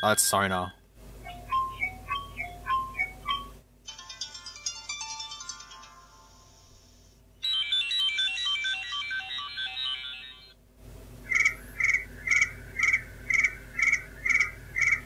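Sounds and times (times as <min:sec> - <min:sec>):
midi ringtone melody: 0:00.0 - 0:10.6
ringtone pulses: 0:01.2 - 0:10.6.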